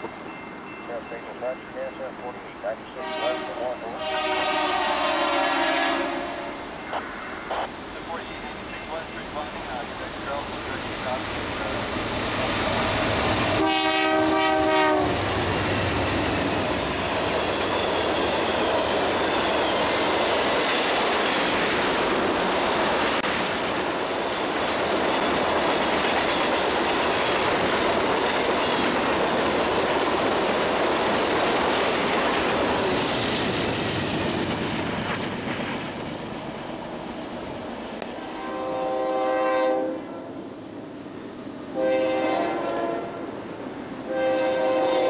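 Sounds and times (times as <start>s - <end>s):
freight train passing: 0.0s - 45.0s
train horn blast: 2.9s - 7.7s, 13.4s - 15.4s, 38.2s - 40.4s, 41.7s - 43.4s, 44.0s - 45.0s
wheels clattering on rails: 16.2s - 36.1s.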